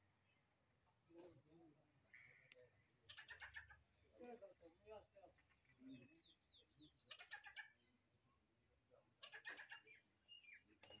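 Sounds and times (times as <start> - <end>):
bird whistling and chattering: 6.1 - 7.7.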